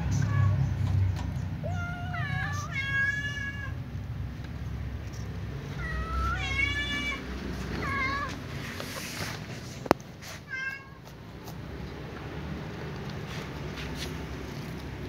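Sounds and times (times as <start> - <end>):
cat meowing: 0.0 - 0.7, 1.6 - 3.8, 5.6 - 8.5, 10.4 - 11.2.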